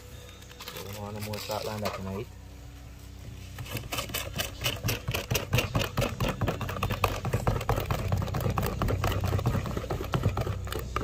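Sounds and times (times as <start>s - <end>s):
batter stirred in bowl: 3.6s - 11.0s.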